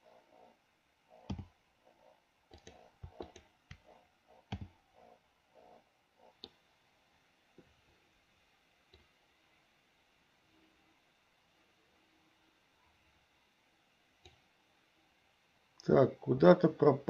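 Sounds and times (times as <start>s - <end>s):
mouse and keyboard clicks: 1.2s - 1.5s, 2.5s - 3.9s.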